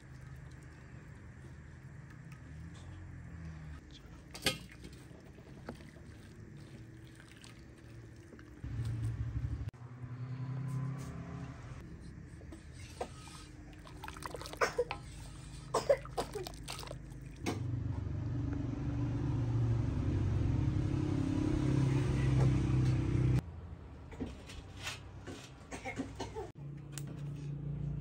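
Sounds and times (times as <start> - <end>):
steady low rumble: 8.6 - 9.8.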